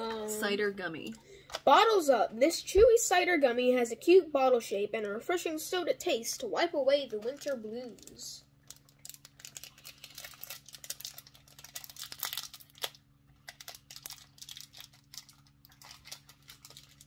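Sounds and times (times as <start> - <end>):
candy wrapper crinkling: 6.9 - 17.0.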